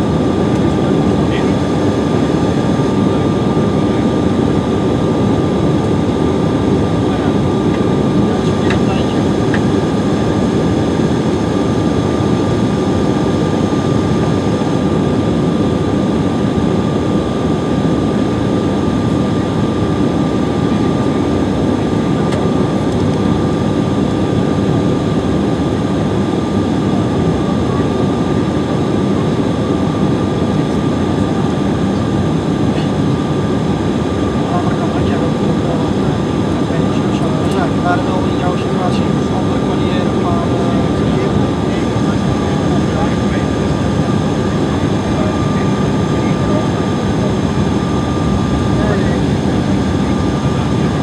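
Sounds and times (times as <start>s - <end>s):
constant high whine: 0.0s - 51.0s
turbofan engines: 0.0s - 51.0s
airflow rushing in jet cabin: 28.9s - 51.0s.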